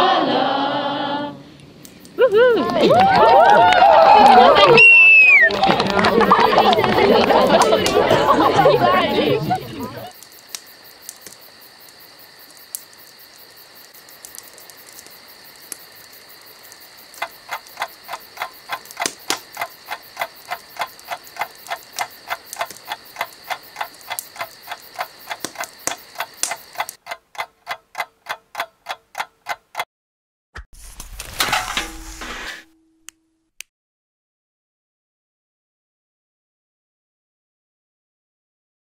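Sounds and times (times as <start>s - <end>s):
clock ticking: 17.1s - 29.9s.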